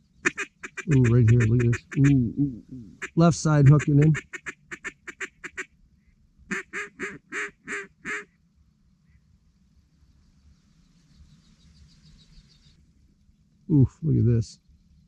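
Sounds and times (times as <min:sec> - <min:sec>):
duck call quacks: 0:00.2 - 0:02.2, 0:03.0 - 0:05.7, 0:06.5 - 0:08.3.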